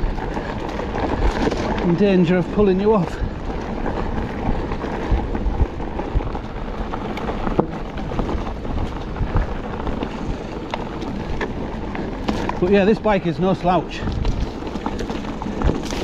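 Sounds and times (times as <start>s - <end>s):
bike clicks and knocks: 0.0s - 16.0s
tyres rushing over dirt: 0.0s - 16.0s
wind on microphone: 3.1s - 10.5s, 13.9s - 16.0s.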